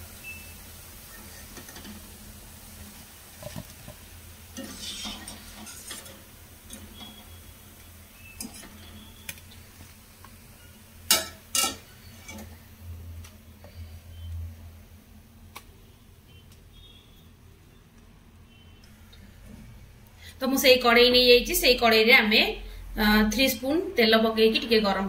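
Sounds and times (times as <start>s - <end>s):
oil sizzling: 0.0s - 16.0s
wire strainer scraping metal pan: 4.5s - 7.4s, 8.3s - 9.2s, 10.6s - 12.6s.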